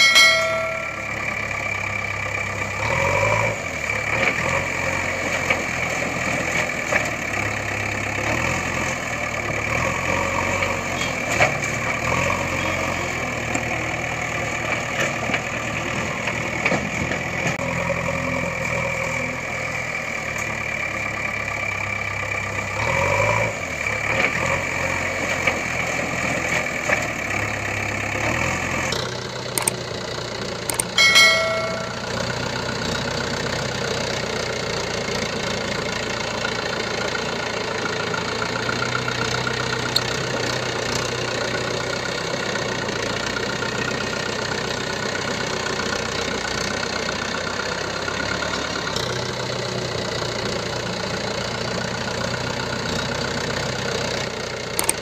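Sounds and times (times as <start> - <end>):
bell-like ding: 0.0 - 1.5, 30.7 - 32.3
vehicle engine idling: 0.0 - 55.0.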